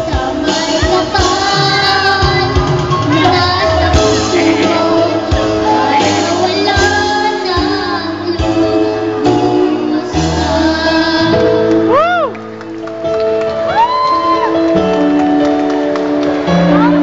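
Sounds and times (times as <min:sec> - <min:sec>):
girl singing into microphone: 0:00.0 - 0:12.3
backing music with bass and beat: 0:00.0 - 0:17.0.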